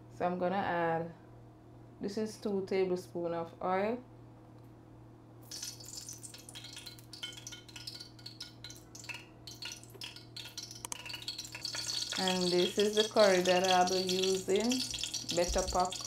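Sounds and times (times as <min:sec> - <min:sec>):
oil sizzling in a pot: 0:05.4 - 0:16.0.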